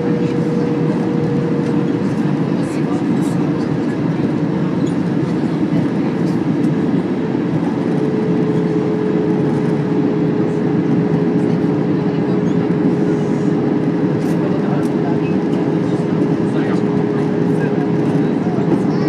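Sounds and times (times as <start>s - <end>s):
aircraft engines rushing: 0.0s - 19.0s
airflow over fuselage: 0.0s - 19.0s.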